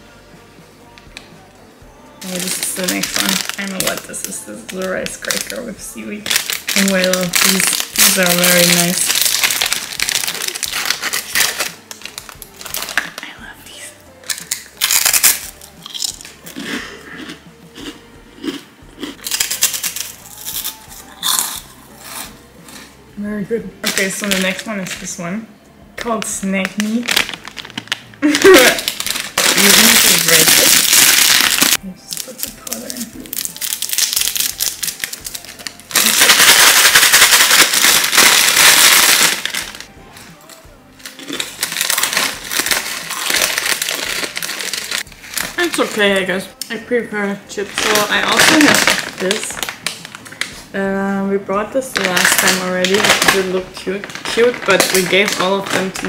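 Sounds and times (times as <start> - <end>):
rice cracker crunching: 2.2 - 13.2, 14.2 - 22.9, 26.8 - 39.9, 41.0 - 46.0, 47.8 - 50.5, 54.1 - 56.0
noodle bits rattling in plastic packet: 2.2 - 13.3, 14.3 - 16.3, 19.2 - 21.6, 23.8 - 25.2, 26.2 - 39.9, 41.0 - 46.1, 47.7 - 50.5, 51.9 - 56.0
plastic packet crinkling: 2.2 - 13.4, 14.2 - 16.6, 19.2 - 21.6, 23.8 - 25.2, 26.2 - 39.9, 41.0 - 46.2, 47.6 - 50.6, 51.8 - 56.0.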